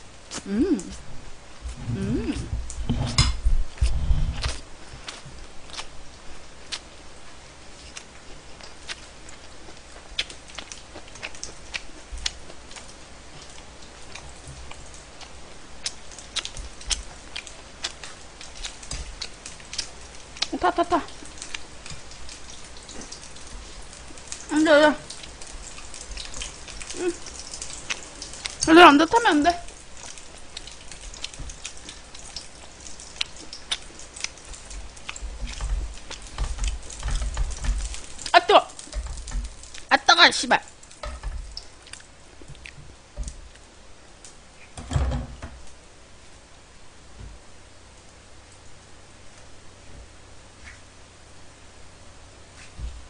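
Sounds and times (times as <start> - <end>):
fat crackling and popping: 0.0 - 45.8
pork sizzling in a frying pan: 4.6 - 43.9.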